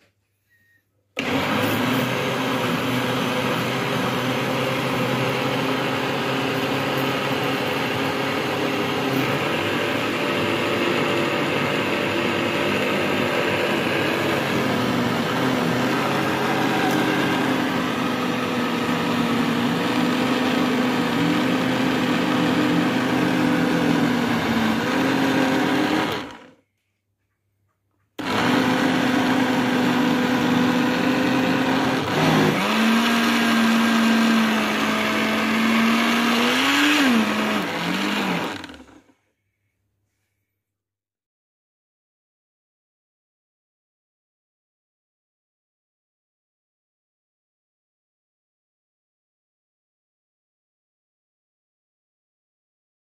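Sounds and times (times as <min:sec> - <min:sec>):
electric blender motor running: 0:01.2 - 0:26.6, 0:28.2 - 0:39.1.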